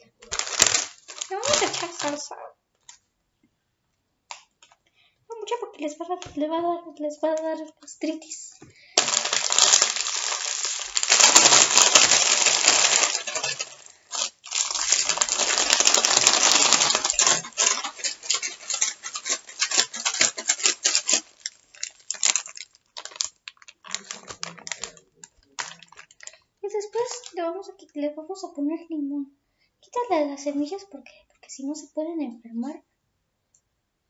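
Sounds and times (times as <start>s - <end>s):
foil bag crackling: 0.2s - 2.3s, 9.0s - 27.3s
chips rattling in shaken bag: 0.2s - 2.4s, 9.0s - 26.4s.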